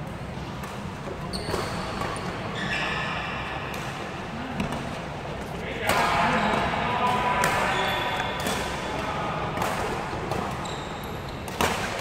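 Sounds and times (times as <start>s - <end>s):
low hall hum: 0.0s - 12.0s
shoe squeak on floor: 1.2s - 3.4s, 7.6s - 8.4s, 10.6s - 11.5s
racket striking shuttlecock: 11.4s - 12.0s.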